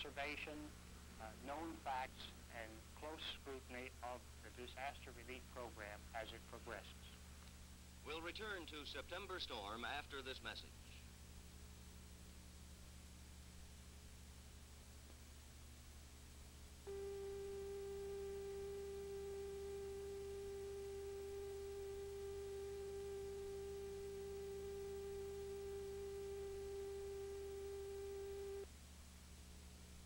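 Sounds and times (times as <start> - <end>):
low electrical hum: 0.0 - 30.0
steady test tone: 16.8 - 28.7.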